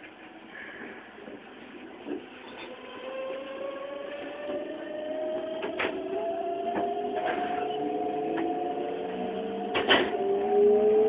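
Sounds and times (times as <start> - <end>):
train inverter whining: 0.0 - 11.0.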